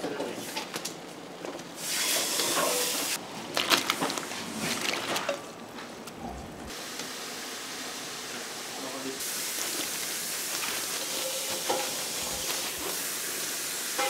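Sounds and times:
broth boiling hard: 6.6s - 14.0s.

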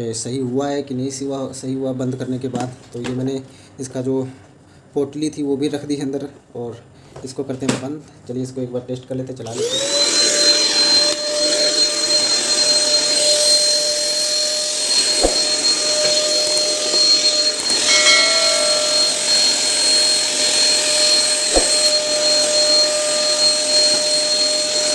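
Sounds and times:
vacuum cleaner motor whining: 9.4s - 24.9s.

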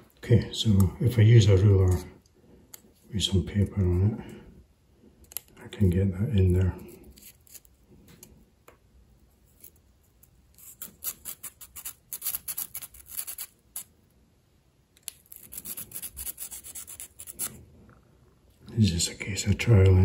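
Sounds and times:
sandpaper rasping on brass: 15.3s - 17.5s.

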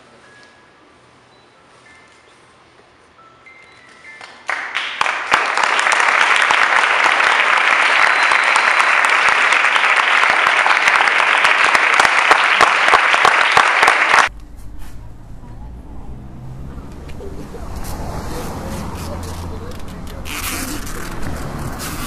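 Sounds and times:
audience applauding: 4.2s - 14.3s.

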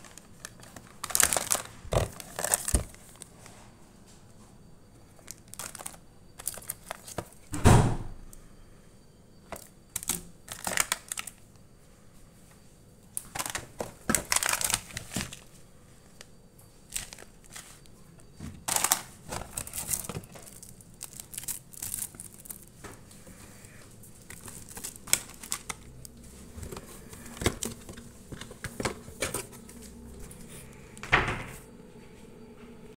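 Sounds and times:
plastic snack packets crinkling: 0.0s - 3.4s, 5.1s - 7.5s, 9.5s - 11.6s, 13.1s - 18.0s, 18.6s - 30.8s
cardboard box rustling: 0.4s - 3.2s, 13.4s - 15.4s, 24.3s - 29.8s.

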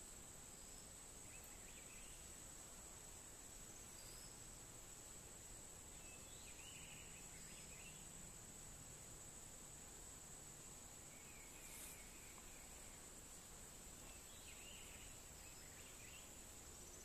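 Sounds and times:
faint bird chirps: 0.5s - 2.5s, 3.5s - 4.7s, 5.8s - 8.4s, 10.8s - 17.0s.

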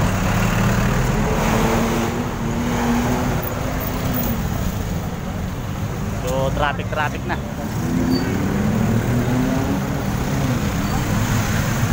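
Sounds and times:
road traffic passing: 0.0s - 11.9s.

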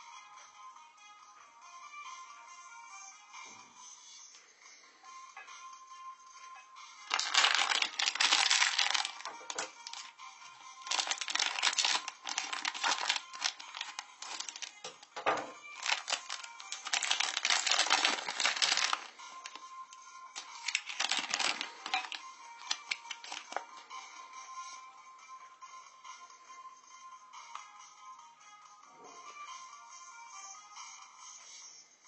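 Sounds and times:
faint background music: 0.0s - 32.0s
foil wrapper crinkling: 7.1s - 10.1s, 10.8s - 19.6s, 20.4s - 23.6s.

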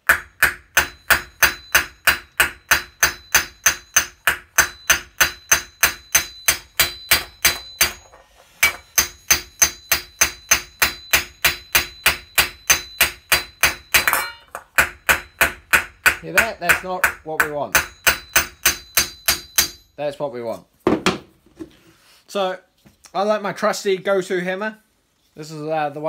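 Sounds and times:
hammer striking steel: 0.0s - 19.9s.

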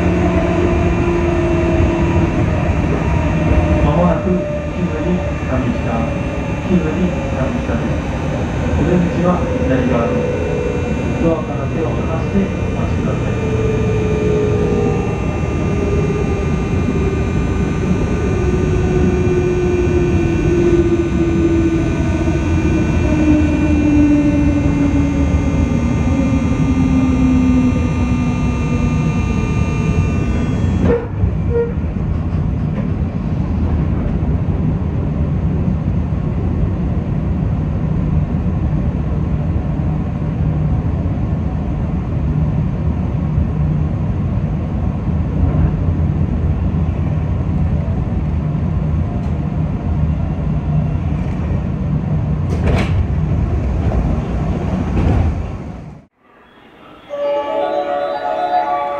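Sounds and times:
electric chopper whine: 0.0s - 31.2s
train rumbling on rails: 30.9s - 56.0s.

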